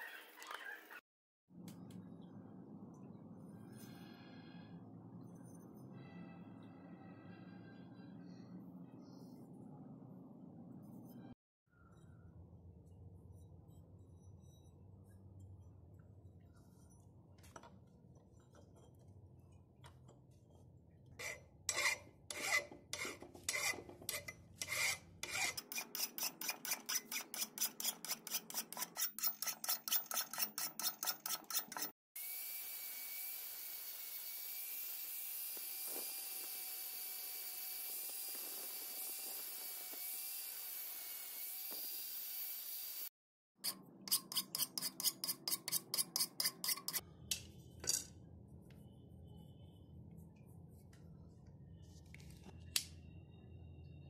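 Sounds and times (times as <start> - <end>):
hand file rasping on steel: 21.2 - 32.0, 44.1 - 47.0.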